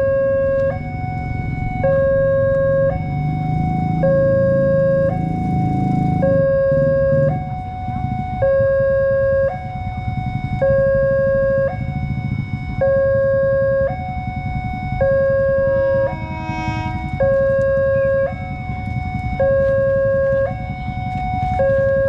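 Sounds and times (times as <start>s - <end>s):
two-tone level crossing alarm: 0.0s - 22.0s
low rumble: 10.0s - 22.0s.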